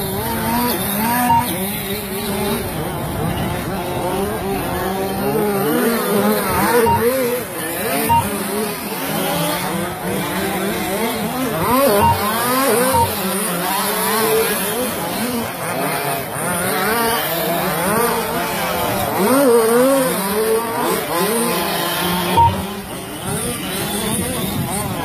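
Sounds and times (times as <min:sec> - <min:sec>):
radio-controlled trucks revving: 0:00.0 - 0:25.0
short high beeps: 0:01.0 - 0:01.8, 0:06.5 - 0:08.4, 0:11.9 - 0:13.3, 0:22.3 - 0:22.7.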